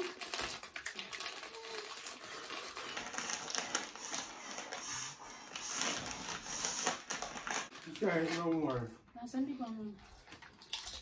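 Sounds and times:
plastic bags crinkling: 0:00.0 - 0:08.8.

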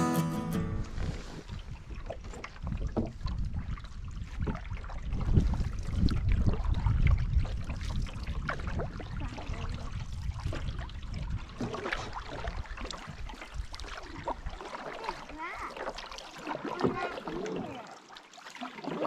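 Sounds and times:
wind buffeting microphone: 0:00.7 - 0:14.6
water lapping and trickling: 0:00.7 - 0:19.0
small water splashes and drips: 0:01.5 - 0:19.0.

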